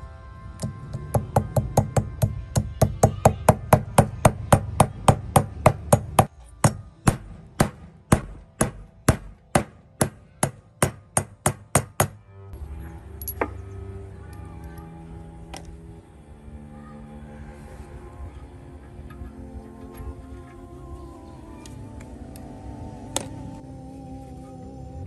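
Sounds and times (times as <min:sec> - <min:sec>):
hammer striking metal: 0:00.9 - 0:12.2.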